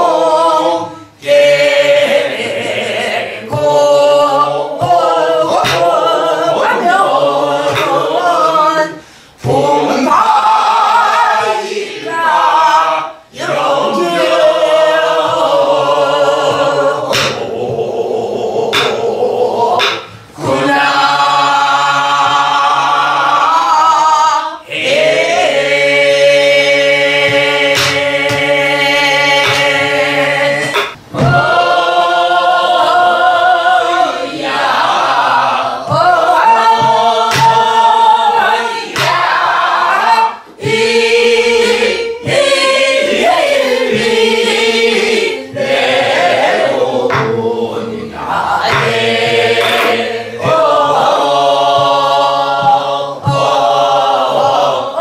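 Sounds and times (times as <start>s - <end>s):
group singing folk song in unison: 0.0s - 55.0s
barrel drum strokes: 13.4s - 18.0s, 18.7s - 21.0s, 27.1s - 32.0s, 34.4s - 47.8s, 48.6s - 54.4s.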